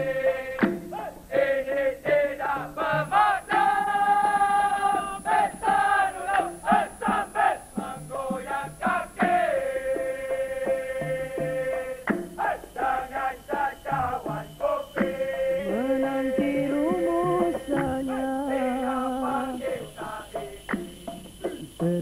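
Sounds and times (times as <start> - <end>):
drum: 0.0 - 1.3, 2.0 - 22.0
man singing ornamented melody: 12.6 - 20.7.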